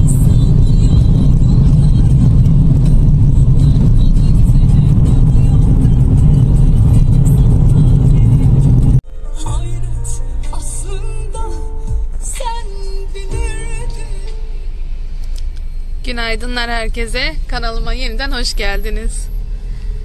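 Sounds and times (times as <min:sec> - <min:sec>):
car driving rumble from inside: 0:00.0 - 0:20.0
music: 0:00.1 - 0:15.4.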